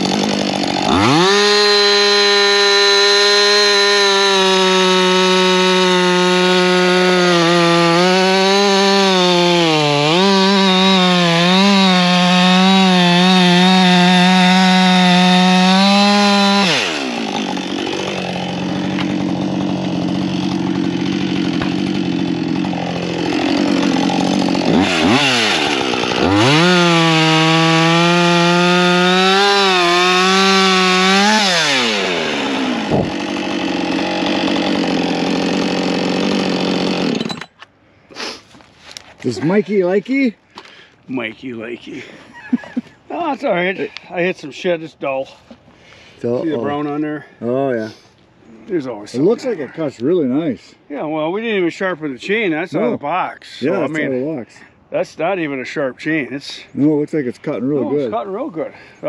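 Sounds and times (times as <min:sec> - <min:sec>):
chainsaw cutting wood: 0:00.0 - 0:37.6.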